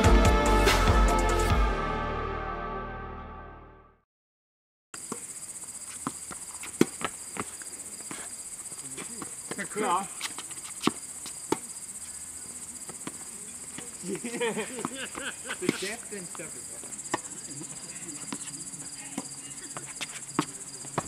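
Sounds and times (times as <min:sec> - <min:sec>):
background music: 0:00.0 - 0:04.0
crickets chirring: 0:05.0 - 0:21.0
tennis balls being hit: 0:06.0 - 0:08.2, 0:17.0 - 0:21.0
person speaking: 0:08.8 - 0:10.2, 0:15.0 - 0:21.0.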